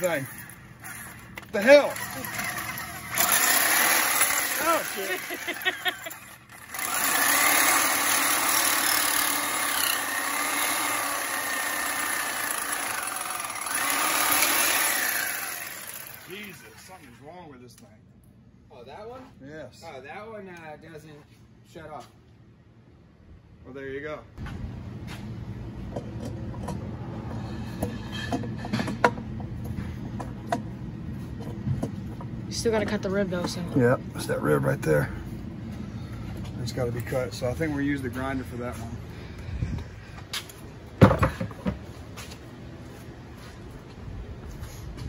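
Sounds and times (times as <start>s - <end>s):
reciprocating saw cutting metal: 0.0s - 17.0s
steady low hum: 13.2s - 45.0s.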